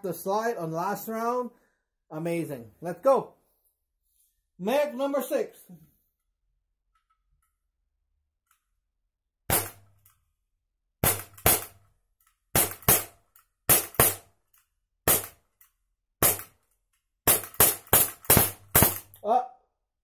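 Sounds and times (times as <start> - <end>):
air pistol shots cracking: 9.5 - 9.9, 11.0 - 11.8, 12.6 - 14.3, 15.1 - 15.4, 16.2 - 16.6, 17.3 - 19.2.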